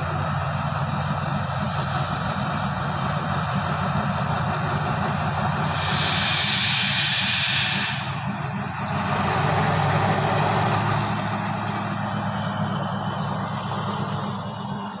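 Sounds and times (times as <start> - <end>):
locomotive diesel engine drone: 0.0 - 15.0.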